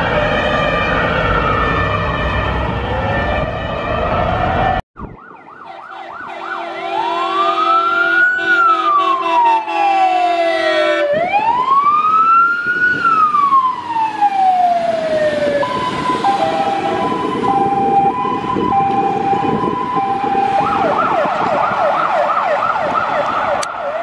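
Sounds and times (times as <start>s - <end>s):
fire engine siren: 0.0s - 24.0s.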